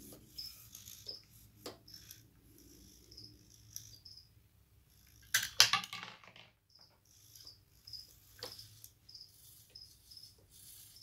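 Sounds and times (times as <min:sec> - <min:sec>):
crickets chirping: 0:02.9 - 0:04.3, 0:06.7 - 0:11.0.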